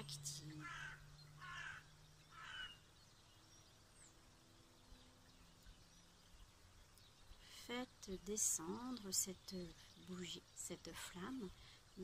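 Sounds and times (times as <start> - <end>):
crow cawing: 0.6 - 2.8.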